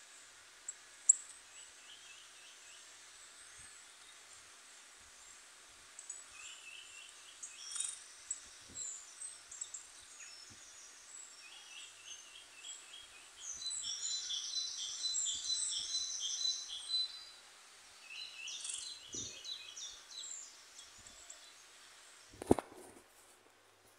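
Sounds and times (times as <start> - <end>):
birds chirping from phone: 18.1 - 20.9.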